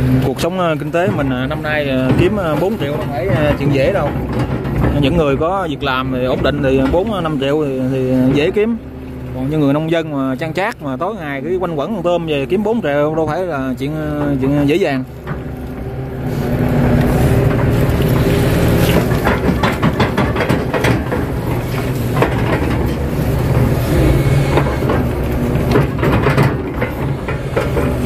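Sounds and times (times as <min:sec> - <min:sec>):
bucket knocks and clatters: 0:00.0 - 0:09.8, 0:12.7 - 0:28.0
excavator diesel engine: 0:00.0 - 0:28.0.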